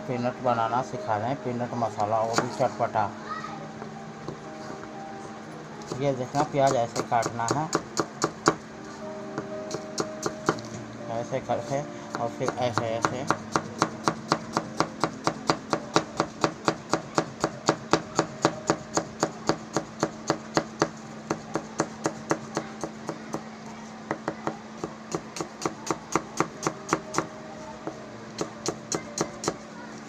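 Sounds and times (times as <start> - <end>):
knife chopping onion on board: 2.3 - 2.7, 5.9 - 8.6, 9.7 - 10.7, 12.1 - 23.4, 24.1 - 27.3.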